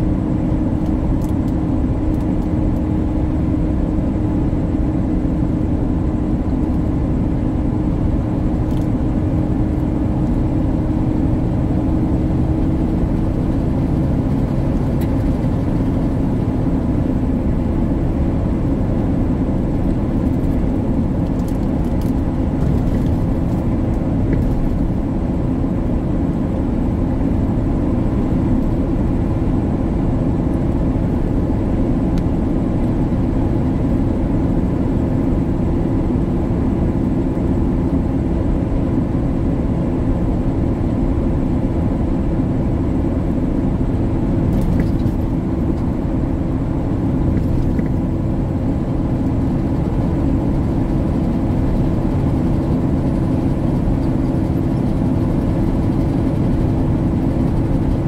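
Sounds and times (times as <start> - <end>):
road rumble: 0.0 - 58.0
truck engine drone: 0.0 - 58.0.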